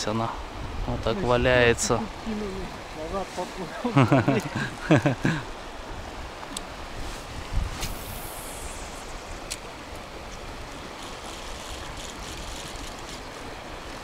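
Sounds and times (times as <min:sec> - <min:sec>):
river water rushing: 0:00.0 - 0:14.0
wind rumbling on microphone: 0:00.4 - 0:02.9, 0:05.7 - 0:14.0.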